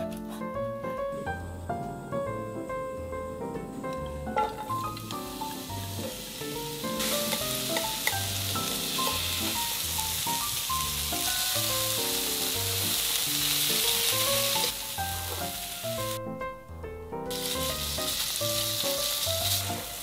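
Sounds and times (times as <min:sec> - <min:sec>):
background music: 0:00.0 - 0:20.0
vegetables sizzling in hot oil: 0:04.4 - 0:16.2, 0:17.3 - 0:20.0.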